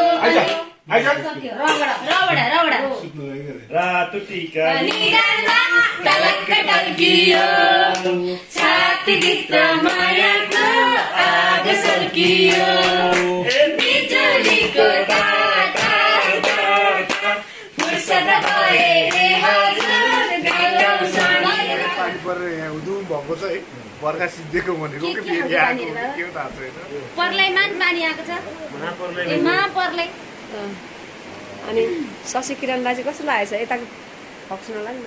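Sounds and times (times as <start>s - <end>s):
group singing folk song: 0.0s - 0.8s, 4.2s - 22.4s
hand clapping: 4.8s - 6.3s, 7.3s - 10.8s, 11.7s - 21.4s.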